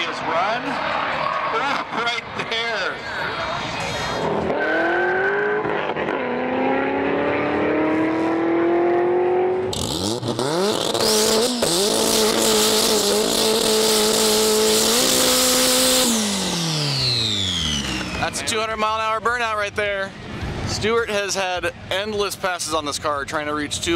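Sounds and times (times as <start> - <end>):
race car engine revving: 4.0 - 18.4.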